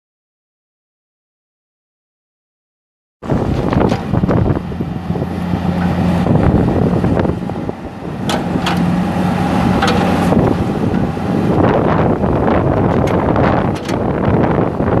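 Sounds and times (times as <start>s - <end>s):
diesel excavator running: 3.2s - 15.0s.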